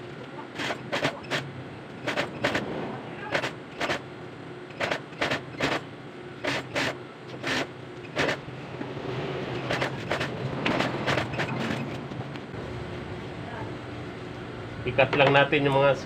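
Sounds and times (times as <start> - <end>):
motor hum: 0.0 - 16.0
sewing machine stitching: 0.6 - 2.7, 3.3 - 4.0, 4.7 - 5.8, 6.4 - 8.4, 9.5 - 12.0.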